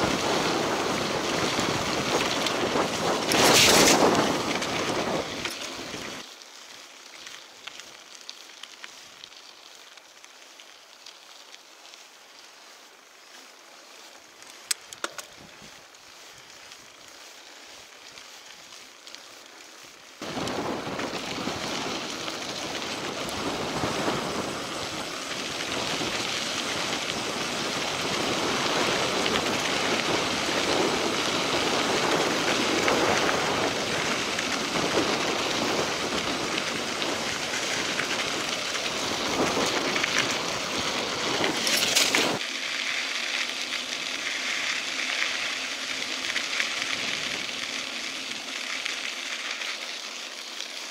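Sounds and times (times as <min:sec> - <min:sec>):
wind rushing over microphone: 0:00.0 - 0:06.2, 0:20.2 - 0:42.4
tyres rumbling on gravel: 0:00.0 - 0:06.3, 0:13.1 - 0:50.9.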